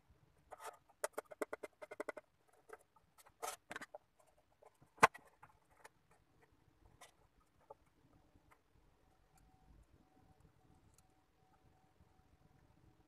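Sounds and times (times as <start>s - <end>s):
wooden parts clicking and rattling: 1.0s - 6.2s.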